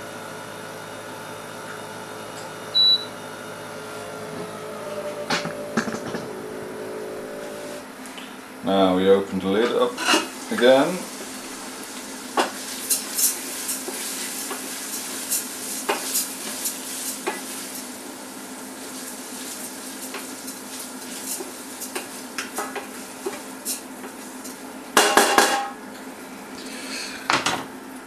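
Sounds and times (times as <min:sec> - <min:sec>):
low machine hum: 0:00.0 - 0:28.0
rice sizzling in hot oil: 0:10.0 - 0:25.6.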